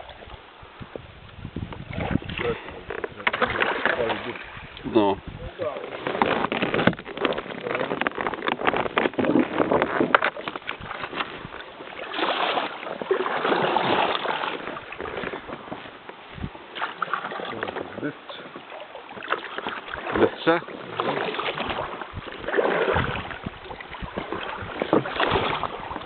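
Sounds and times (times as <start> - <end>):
paddle splashing in water: 0.0 - 26.0
rushing water: 0.0 - 26.0
knocks and rustles: 5.8 - 11.5.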